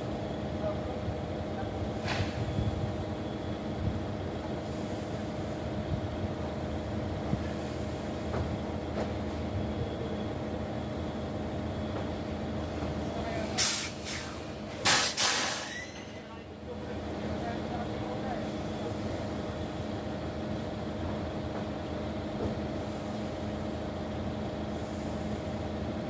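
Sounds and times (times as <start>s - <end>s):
heavy vehicle engine idling: 0.0s - 14.9s, 15.8s - 26.0s
compressed air hiss: 13.6s - 15.9s.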